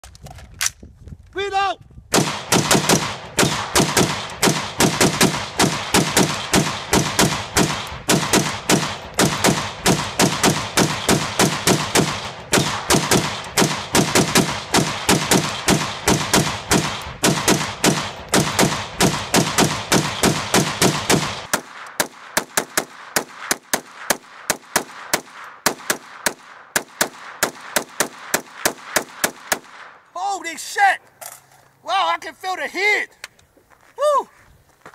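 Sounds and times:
rapid rifle fire: 0:02.1 - 0:30.0.

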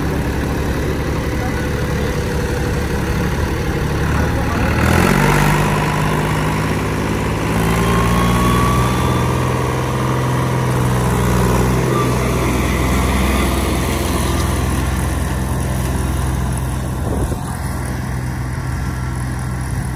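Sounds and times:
tractor diesel engine running: 0:00.0 - 0:19.9.

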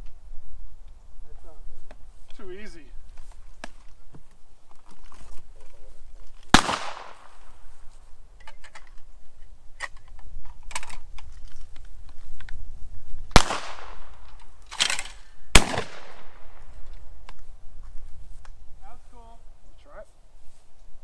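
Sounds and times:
loud shotgun shots: 0:06.5 - 0:07.4, 0:13.3 - 0:14.2, 0:14.8 - 0:16.6.

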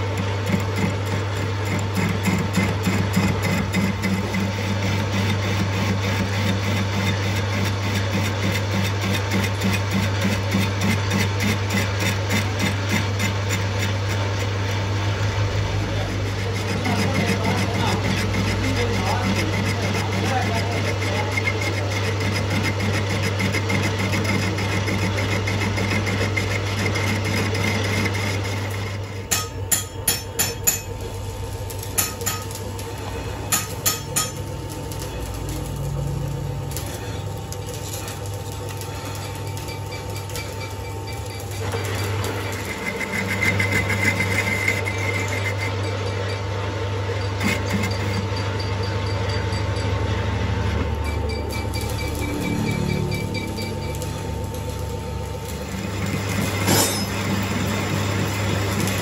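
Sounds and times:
lathe motor hum: 0:00.0 - 0:59.0
lathe tool cutting metal: 0:00.0 - 0:59.0.

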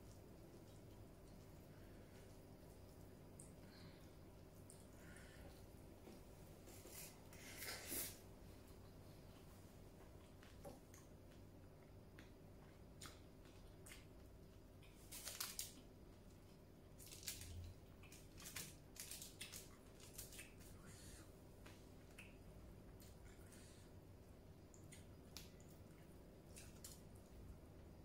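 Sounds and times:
low steady hum: 0:00.0 - 0:28.0
fingers crackling in foil tray: 0:14.9 - 0:15.8, 0:17.0 - 0:20.6.

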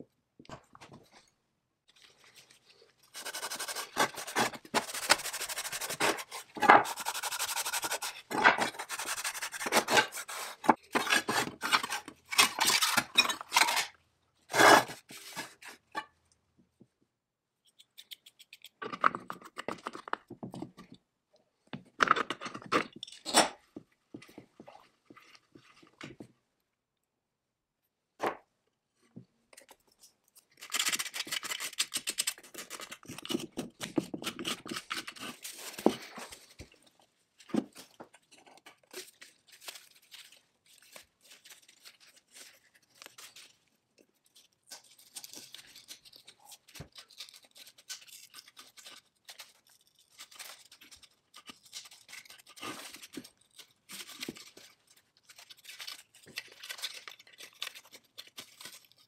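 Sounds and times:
scraping and rubbing on metal parts: 0:03.1 - 0:16.1.

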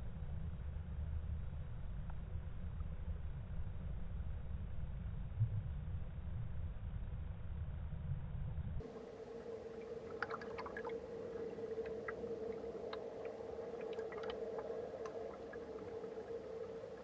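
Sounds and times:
underwater steady hum: 0:00.0 - 0:17.0
low rushing water: 0:08.8 - 0:17.0
small clicks and ticks: 0:08.9 - 0:17.0.

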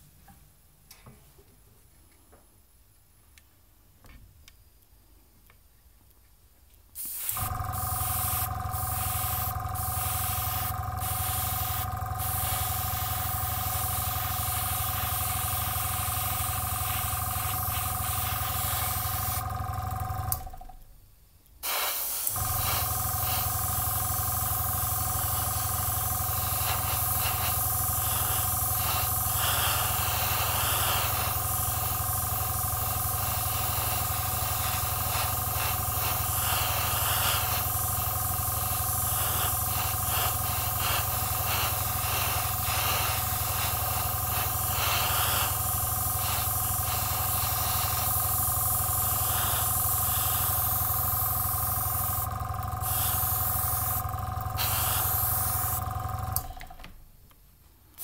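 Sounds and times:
airbrush spraying hiss: 0:07.0 - 0:19.5, 0:21.6 - 0:55.9
steady hum: 0:22.1 - 0:56.8.

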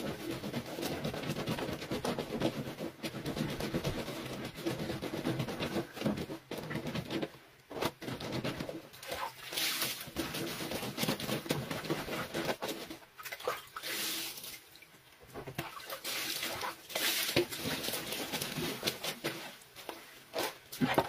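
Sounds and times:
clothes scrubbed and sloshed in water: 0:00.0 - 0:06.9, 0:08.1 - 0:14.8, 0:15.4 - 0:21.0
water poured from plastic scoop: 0:09.0 - 0:14.6, 0:15.6 - 0:19.6.

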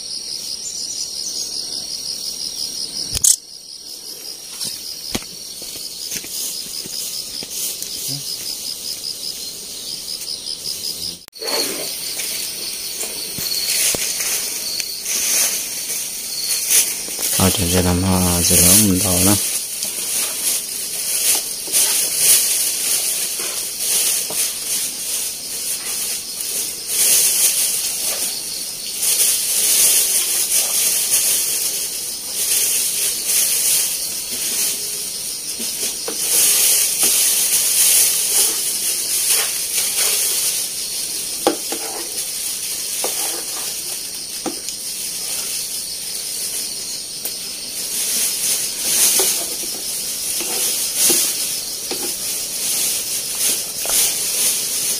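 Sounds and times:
water hissing as it steams: 0:11.4 - 0:46.0
fire crackles and knocks: 0:19.3 - 0:28.4, 0:48.1 - 0:54.9.

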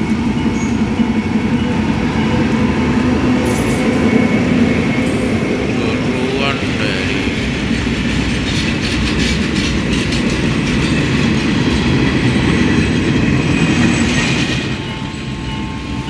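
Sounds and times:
train wheels clattering over rail joints: 0:07.6 - 0:15.1.

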